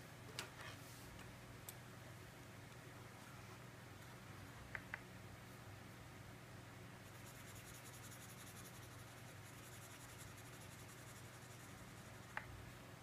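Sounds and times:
low steady hum: 0.0 - 13.0
marker scribbling on paper: 7.1 - 12.3.

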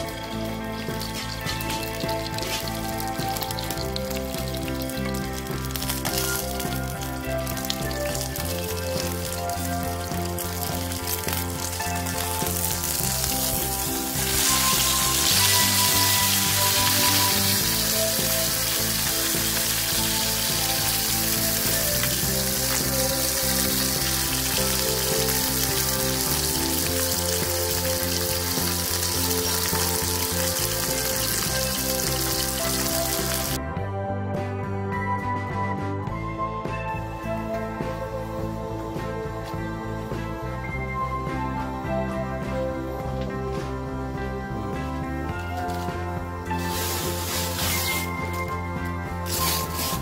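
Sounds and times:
fish frying in oil: 0.0 - 33.6, 46.6 - 48.1, 49.3 - 50.0
background music: 0.0 - 50.0.

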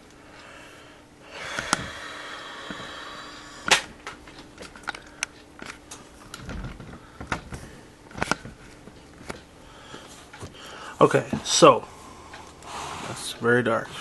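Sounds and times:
sharp clicks and knocks: 3.7 - 9.5.

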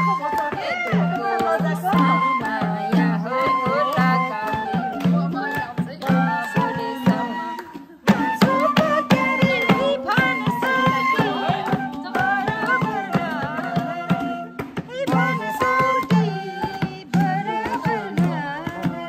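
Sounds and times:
bamboo flute melody: 0.0 - 19.0
hand drum beat: 0.0 - 19.0
voices singing along: 0.0 - 19.0.

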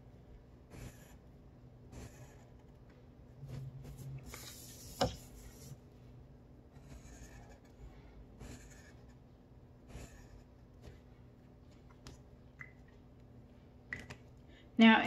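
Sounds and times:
marker drawing on paper: 0.6 - 2.8, 3.4 - 5.8, 6.7 - 11.1.

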